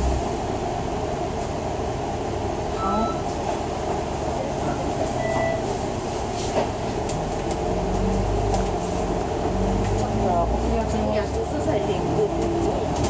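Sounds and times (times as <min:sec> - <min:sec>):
bus engine and road noise: 0:00.0 - 0:13.0
brief beep: 0:02.8 - 0:03.2, 0:05.2 - 0:05.8.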